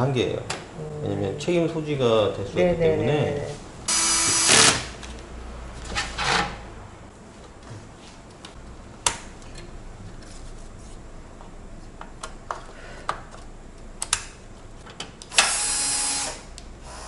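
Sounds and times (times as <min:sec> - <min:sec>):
cordless drill motor whirring: 0:03.9 - 0:04.9, 0:15.3 - 0:17.0.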